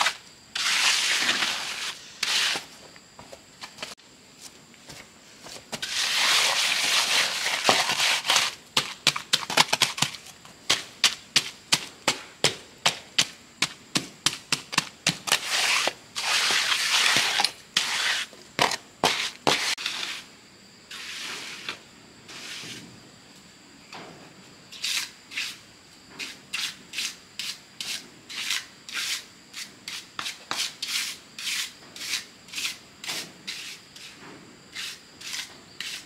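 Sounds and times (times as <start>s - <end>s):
rough hand tool scraping: 0.0s - 2.7s, 5.8s - 8.6s, 15.2s - 20.3s, 26.2s - 36.0s.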